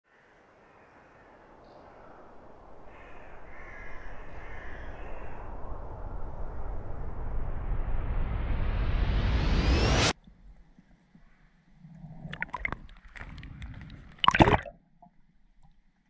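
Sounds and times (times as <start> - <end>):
crows cawing: 0.1 - 6.2
rumbling riser rising in pitch: 4.1 - 10.1.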